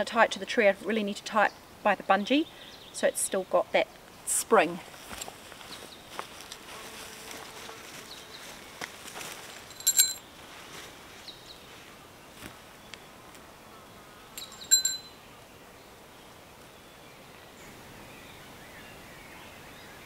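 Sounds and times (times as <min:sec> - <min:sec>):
faint outdoor background noise: 0:00.0 - 0:20.0
metal tent pegs clinking: 0:09.4 - 0:10.2, 0:14.4 - 0:15.2.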